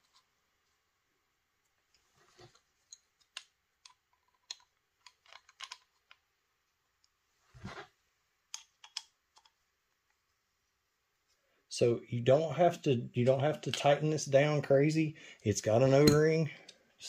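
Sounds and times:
clicks and knocks of parts: 1.9 - 6.2, 8.5 - 9.6.

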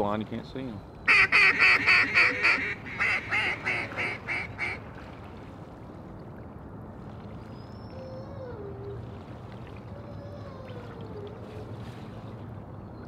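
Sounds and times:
duck quacks: 1.1 - 4.8.

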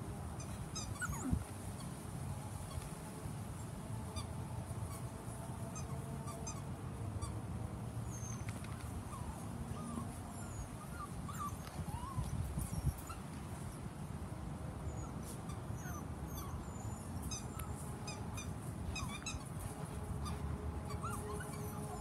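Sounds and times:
puppies whining: 0.4 - 1.5, 8.0 - 13.7, 14.9 - 22.0.

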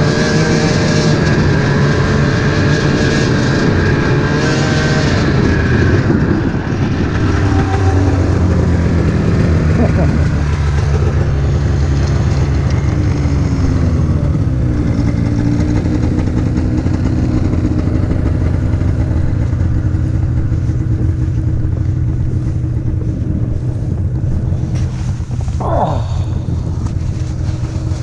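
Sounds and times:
wind buffeting microphone: 0.8 - 28.0
snowmobile engine idling: 5.0 - 28.0
engine note falling in pitch: 7.1 - 10.2.

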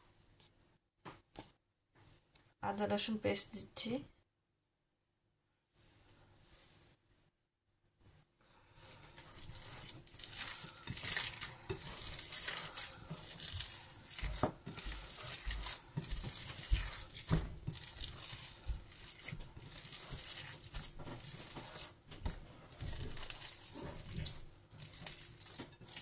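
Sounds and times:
hands kneading wet mixture: 8.7 - 26.0.

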